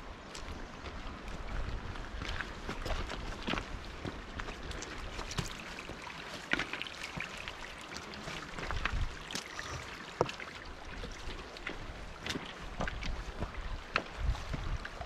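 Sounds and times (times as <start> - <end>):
wind rumble on microphone: 0.0 - 5.6, 8.6 - 9.8, 10.9 - 15.0.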